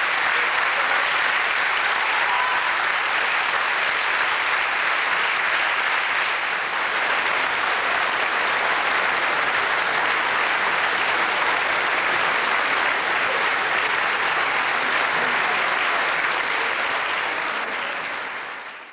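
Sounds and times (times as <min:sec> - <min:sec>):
audience applauding: 0:00.0 - 0:18.9.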